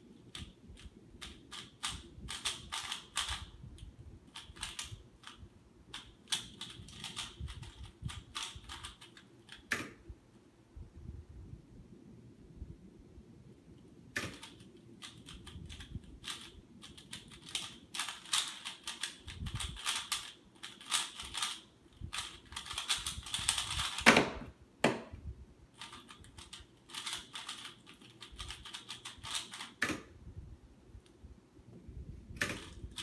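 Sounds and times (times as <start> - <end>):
puzzle cube layers clicking: 0.2 - 10.0, 14.2 - 24.1, 25.8 - 30.1, 32.4 - 33.0.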